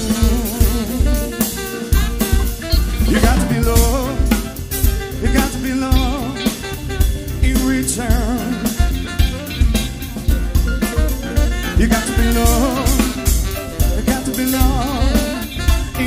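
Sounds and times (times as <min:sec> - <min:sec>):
bass: 0:00.0 - 0:16.0
drum kit with cymbal hits: 0:00.0 - 0:16.0
electric guitar: 0:00.0 - 0:16.0
lead melody with wide vibrato: 0:00.0 - 0:16.0.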